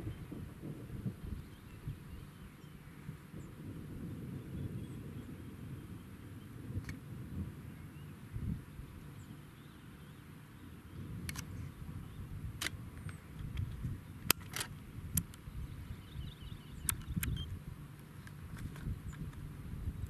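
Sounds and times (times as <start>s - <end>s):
wind buffeting microphone: 0.0s - 20.0s
sharp clicks: 11.2s - 11.5s, 12.6s - 15.4s, 16.8s - 17.5s.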